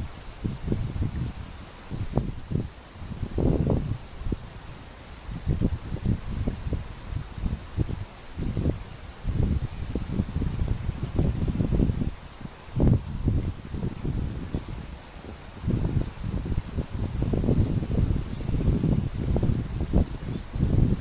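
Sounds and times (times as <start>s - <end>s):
cricket chirping: 0.0s - 13.4s, 14.1s - 21.0s
wind buffeting microphone: 0.0s - 21.0s.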